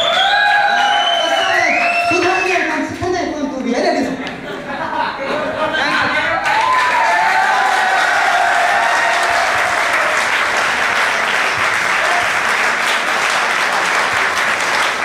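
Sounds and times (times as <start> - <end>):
audience applauding: 0.0 - 2.6, 6.4 - 15.0.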